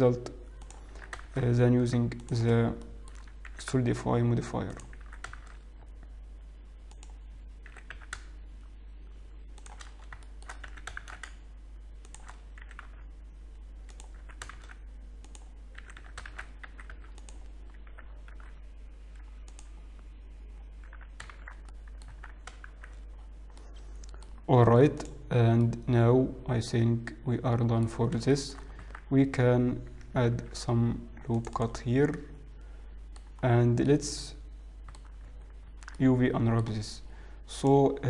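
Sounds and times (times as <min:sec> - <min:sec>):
steady low hum: 0:00.0 - 0:38.0
keyboard typing: 0:00.5 - 0:01.5, 0:02.1 - 0:03.7, 0:04.7 - 0:05.6, 0:06.9 - 0:08.3, 0:09.6 - 0:11.4, 0:12.0 - 0:13.0, 0:13.8 - 0:19.8, 0:20.8 - 0:24.4, 0:34.8 - 0:36.0.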